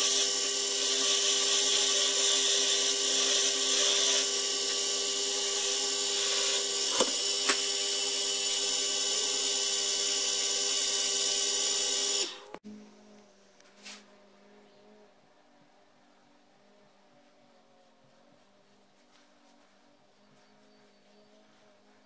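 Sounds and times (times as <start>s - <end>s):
tool hissing on spinning wood: 0.0s - 12.5s
wood lathe motor whine: 0.0s - 12.6s.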